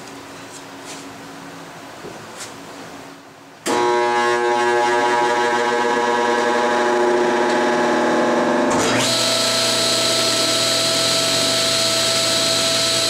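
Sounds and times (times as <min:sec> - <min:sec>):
humming machine: 0:03.6 - 0:13.0
table saw whining: 0:03.7 - 0:13.0.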